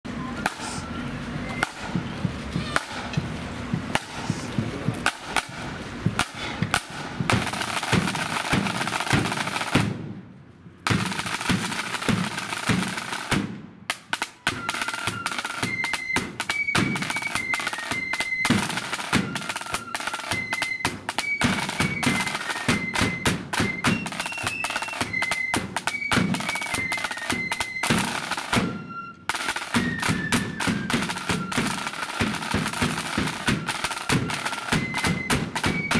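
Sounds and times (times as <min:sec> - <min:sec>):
flute melody: 0:00.1 - 0:03.3, 0:14.0 - 0:35.9
snare drums beating a march: 0:00.3 - 0:35.9
bass drum: 0:01.6 - 0:10.2.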